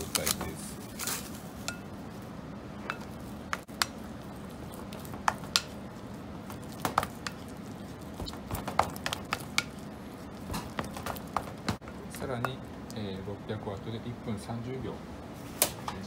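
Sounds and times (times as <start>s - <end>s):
dough squishing: 2.8s - 12.6s.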